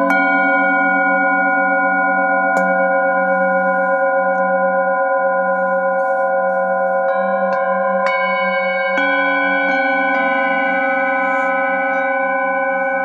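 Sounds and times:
low wavering hum: 0:00.0 - 0:13.0
singing bowls ringing: 0:00.0 - 0:13.0
mallet striking bowl: 0:02.3 - 0:04.6.

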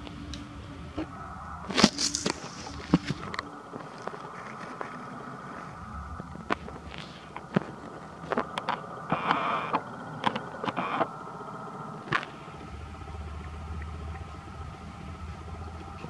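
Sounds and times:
steady background hum: 0:00.0 - 0:16.0
leaves rustling: 0:00.9 - 0:07.4
stems snapping: 0:01.7 - 0:05.0.

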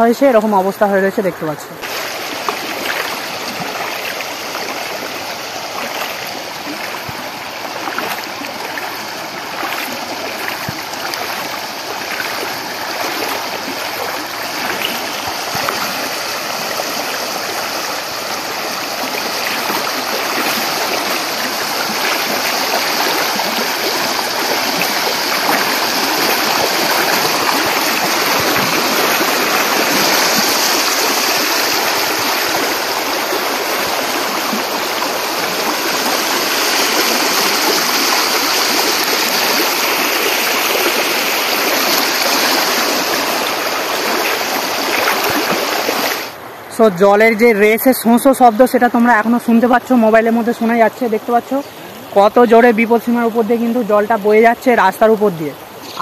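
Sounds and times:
floodwater rushing: 0:00.0 - 0:56.0.

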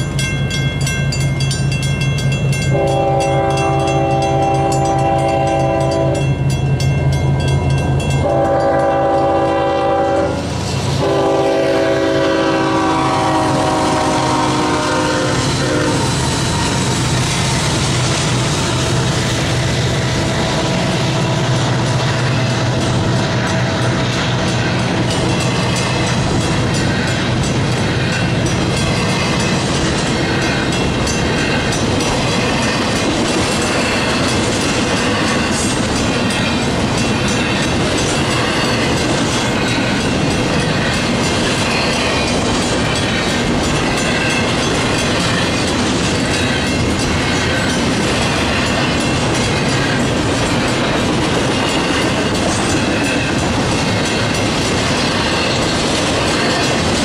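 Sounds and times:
train wheels clattering over rail joints: 0:10.5 - 0:57.0.

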